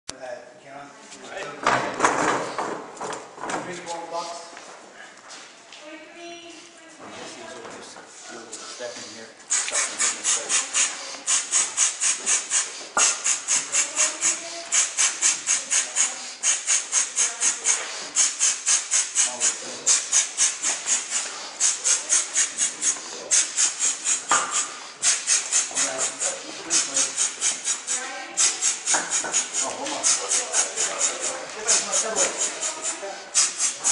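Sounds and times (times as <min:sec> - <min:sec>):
rapid forceful rhythmic breathing: 0:08.4 - 0:33.9.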